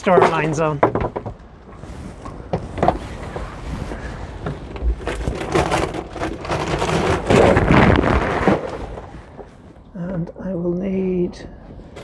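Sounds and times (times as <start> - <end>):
gusty wind on microphone: 1.5 - 9.9.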